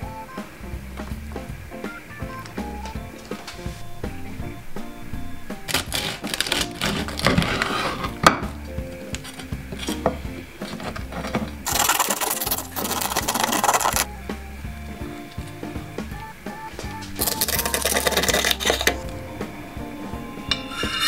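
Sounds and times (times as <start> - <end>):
background music: 0.0 - 21.0
knife sawing crunchy crackling: 5.6 - 8.2, 10.6 - 14.1, 17.2 - 19.0.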